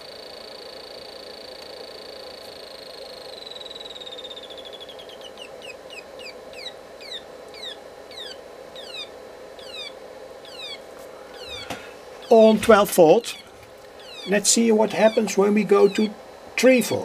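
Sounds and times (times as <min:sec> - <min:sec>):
electronic siren chirping: 0:00.0 - 0:17.0
faint steady hum: 0:00.0 - 0:17.0.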